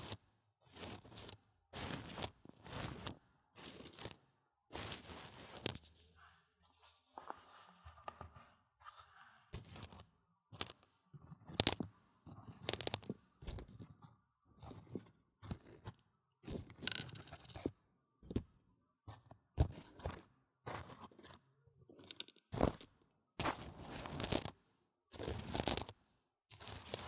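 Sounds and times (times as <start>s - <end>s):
dry beans rattling and clicking: 12.7s - 13.1s, 25.5s - 25.9s.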